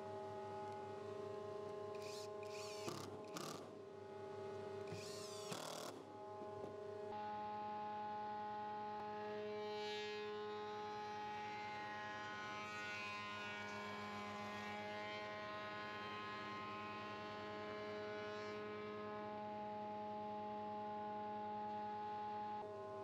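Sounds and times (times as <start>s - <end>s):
cutter rushing through wood: 2.0s - 3.7s, 4.9s - 6.0s.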